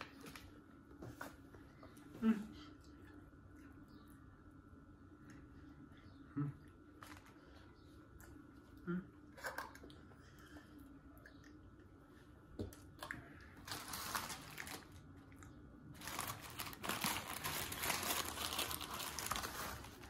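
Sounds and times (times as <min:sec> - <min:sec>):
paper wrapper crinkling: 0:13.6 - 0:15.1, 0:15.9 - 0:20.0.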